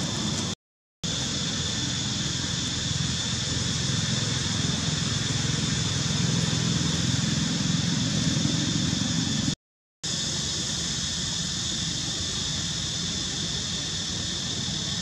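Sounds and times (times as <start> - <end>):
constant high hiss: 0.0 - 15.0.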